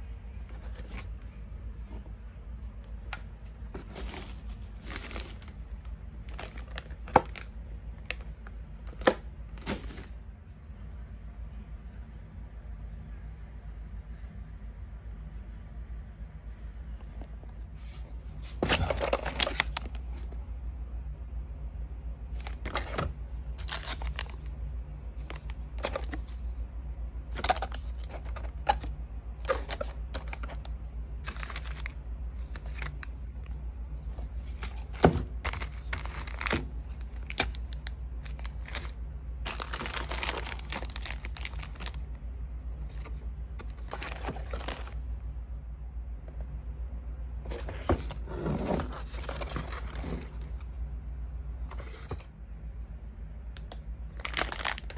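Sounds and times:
steady low hum: 0.0 - 54.9
plastic packaging crinkling: 3.7 - 7.5, 18.4 - 20.2, 22.3 - 24.5, 25.2 - 26.6, 27.3 - 42.2, 42.9 - 45.0, 54.1 - 54.9.

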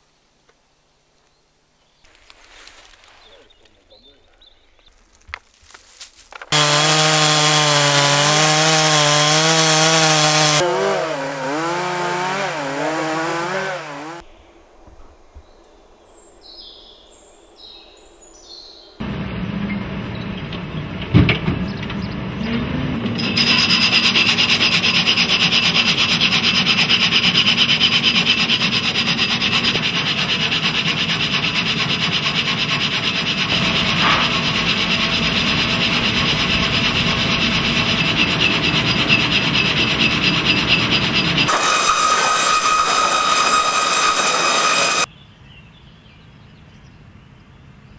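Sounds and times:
band saw high whine: 6.5 - 14.2, 23.1 - 45.1
chainsaw cutting a log: 6.5 - 14.2, 23.2 - 45.1.

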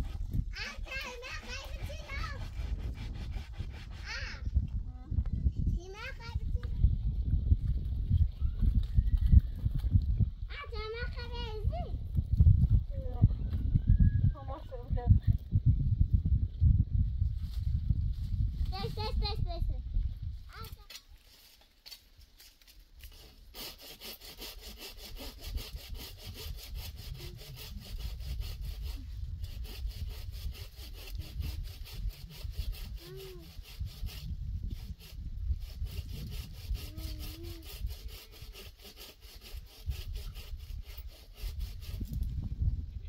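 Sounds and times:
blade scraping wood: 0.0 - 4.5, 20.6 - 42.2.

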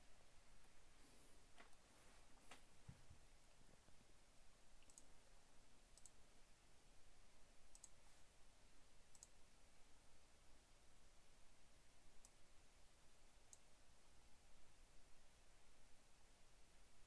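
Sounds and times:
computer mouse clicks: 4.8 - 5.1, 5.9 - 6.2, 7.7 - 8.0, 9.1 - 9.4, 12.2 - 12.4, 13.5 - 13.7.

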